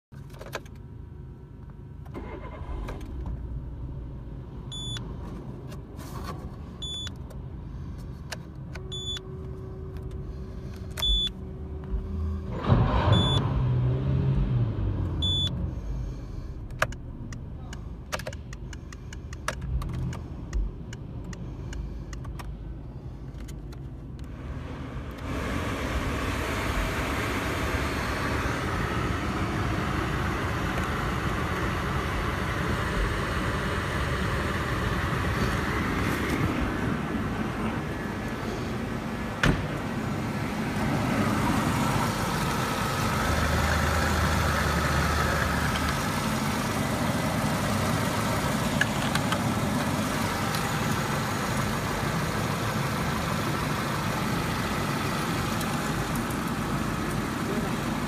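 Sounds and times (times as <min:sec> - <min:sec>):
car engine starting and revving: 0:02.0 - 0:05.0, 0:10.2 - 0:18.0, 0:24.2 - 0:58.0
dashboard warning chime: 0:08.9 - 0:09.3.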